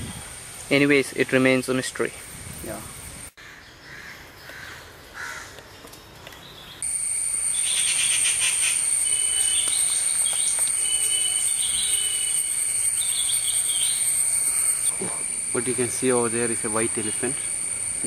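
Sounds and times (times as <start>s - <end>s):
high-pitched insect shrilling: 6.8s - 18.0s.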